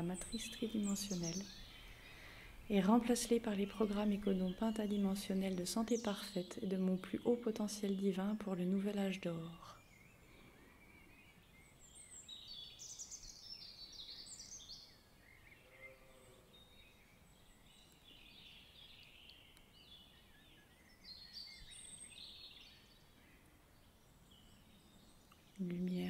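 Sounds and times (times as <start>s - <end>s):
birds chirping and trilling: 0.0s - 26.0s.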